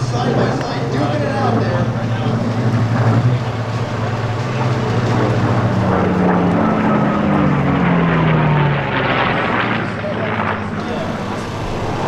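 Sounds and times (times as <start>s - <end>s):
propeller planes flying past: 0.0s - 12.0s.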